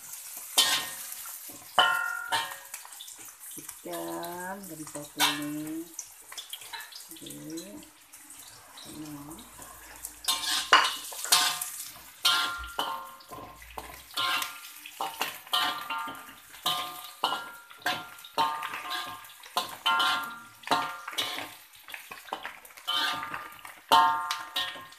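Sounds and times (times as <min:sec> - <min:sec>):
metal spatula scraping a wok: 0:00.2 - 0:02.8, 0:05.1 - 0:05.5, 0:08.8 - 0:24.9.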